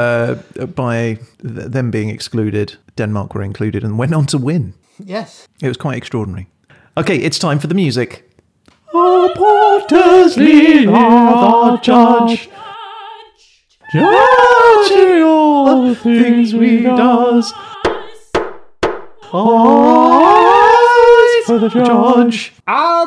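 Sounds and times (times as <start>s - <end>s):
voices singing with vibrato: 8.8s - 18.4s, 19.2s - 22.6s.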